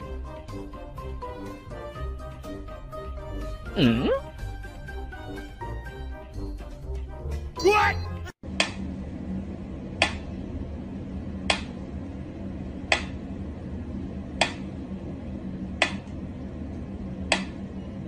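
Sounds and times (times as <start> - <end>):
steady low hum: 8.4 - 18.0.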